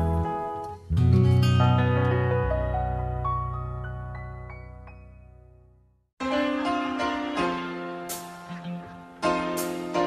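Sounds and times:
instrumental music of held chords: 0.0 - 10.0.

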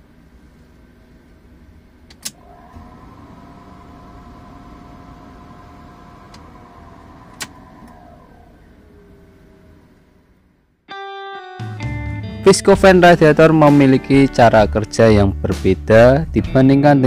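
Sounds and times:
radiator cooling fan whine: 0.0 - 10.8
car engine idling: 2.4 - 10.6.

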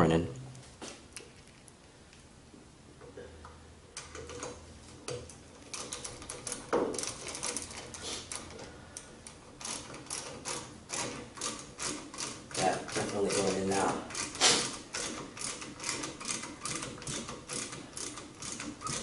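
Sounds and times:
small metallic clicks and rattles: 4.0 - 19.0.

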